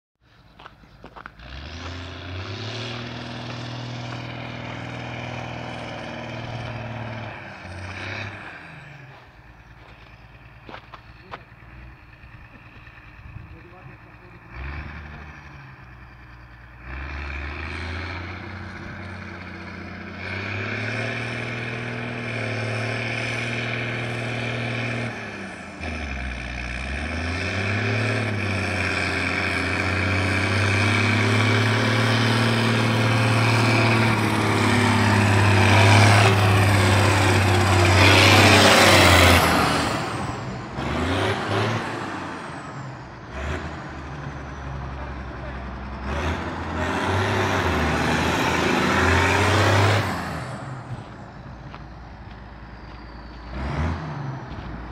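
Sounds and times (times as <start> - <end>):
tractor diesel engine: 0.2 - 54.9.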